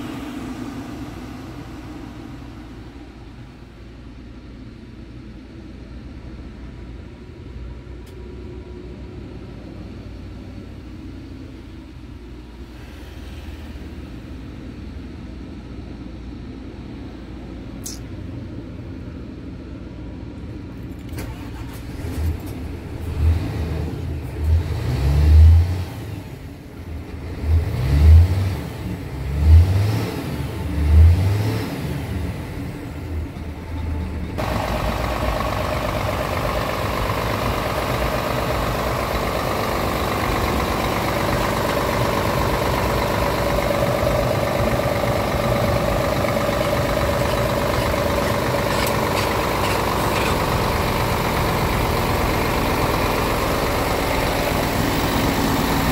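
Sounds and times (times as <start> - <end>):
diesel engine revving: 0.0 - 4.2, 21.0 - 55.9
diesel engine idling: 0.0 - 55.9
steady engine whine: 0.0 - 55.9.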